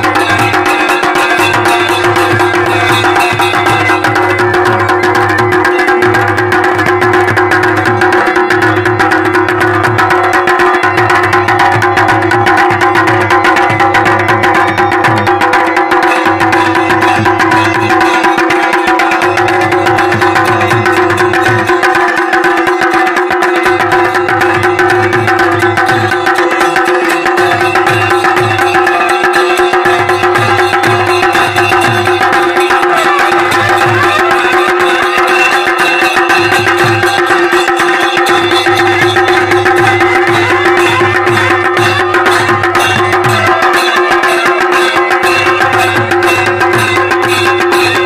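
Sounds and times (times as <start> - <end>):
drums beating fast rhythm: 0.0 - 48.0
bagpipes playing: 32.3 - 48.0.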